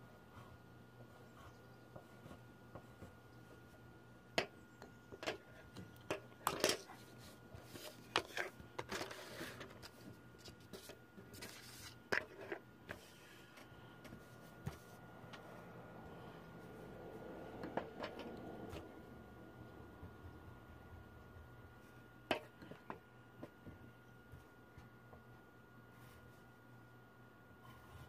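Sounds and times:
faint steady hum: 0.0 - 28.0
pencils scratching on paper: 6.8 - 15.0.

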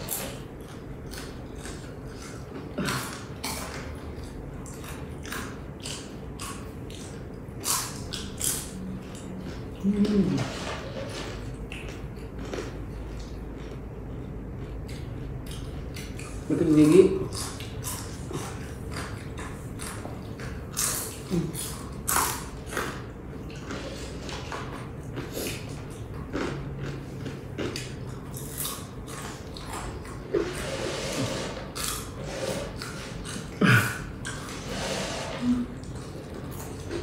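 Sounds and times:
chewing crispy snacks: 0.0 - 34.7, 35.7 - 37.0
mouth sounds: 9.8 - 10.6.

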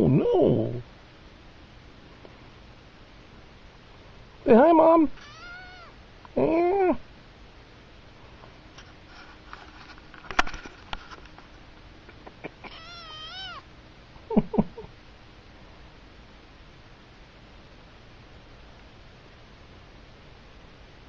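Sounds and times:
kitten meowing: 5.2 - 6.0, 12.6 - 13.7.

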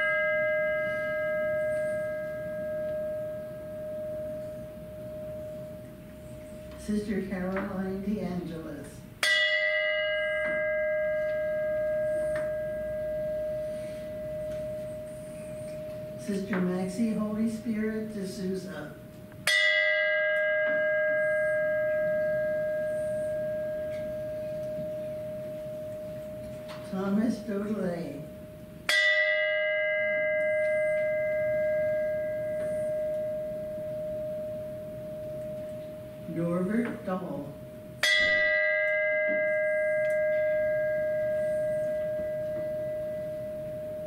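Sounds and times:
bell ringing: 0.0 - 7.6, 9.2 - 18.8, 19.4 - 44.0.

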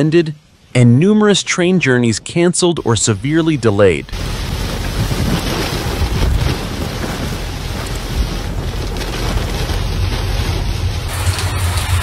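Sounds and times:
wind buffeting microphone: 4.1 - 11.1
waves breaking against seawall: 4.1 - 12.0.

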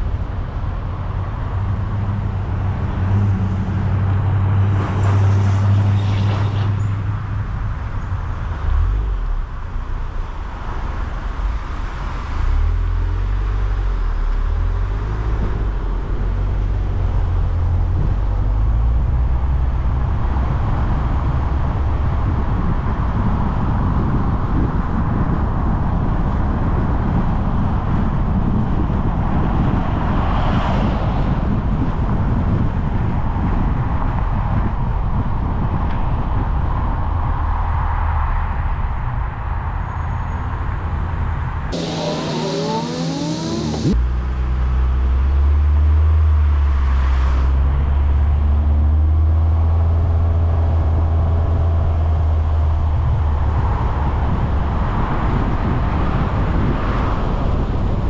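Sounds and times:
tyre and road noise: 0.0 - 58.0
car engine hum: 40.8 - 54.8.

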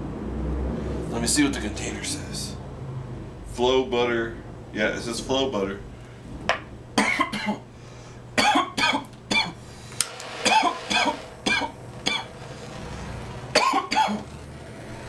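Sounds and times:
man coughing: 7.0 - 7.7, 8.4 - 9.6, 13.6 - 14.2.

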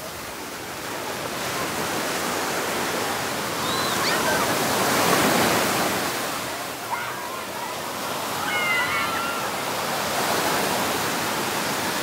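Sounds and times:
surf washing onto beach: 0.0 - 12.0
faint shouts of people: 3.6 - 4.6, 6.6 - 10.0.

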